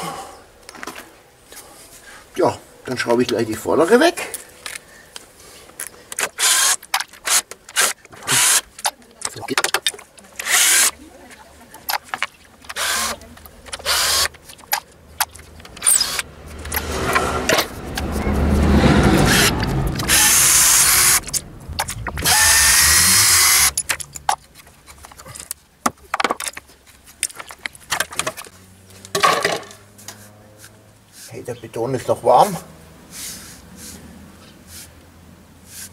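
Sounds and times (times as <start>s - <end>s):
cordless drill motor: 6.4s - 8.6s, 10.4s - 10.9s, 12.7s - 14.3s, 15.8s - 16.3s, 19.3s - 21.2s, 22.2s - 23.8s.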